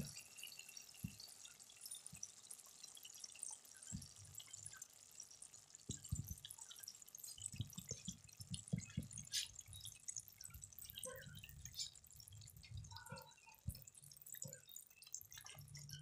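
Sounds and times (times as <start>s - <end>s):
curry bubbling with pops and crackles: 0.0s - 16.0s.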